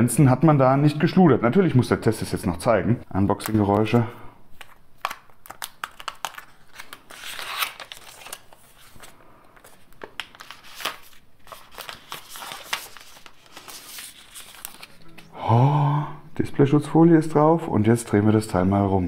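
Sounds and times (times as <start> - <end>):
packaging crinkling and rustling: 3.3 - 15.2.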